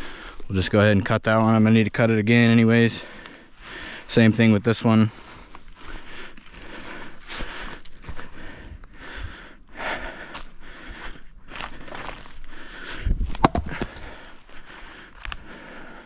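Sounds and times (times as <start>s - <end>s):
footsteps: 10.2s - 15.4s.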